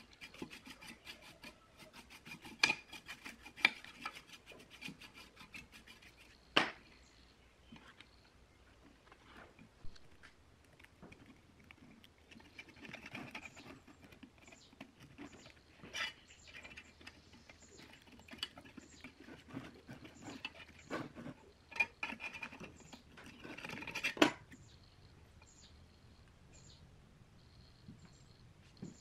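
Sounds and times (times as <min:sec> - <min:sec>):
knife scraping speaker cone: 0:00.0 - 0:06.4, 0:12.3 - 0:24.4.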